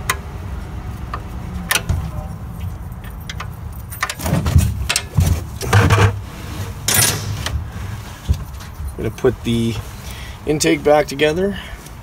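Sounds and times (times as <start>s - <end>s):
metal tools clinking: 2.2s - 6.1s, 6.8s - 7.6s, 8.4s - 9.8s
metal parts clanking: 3.0s - 6.2s, 6.8s - 7.6s.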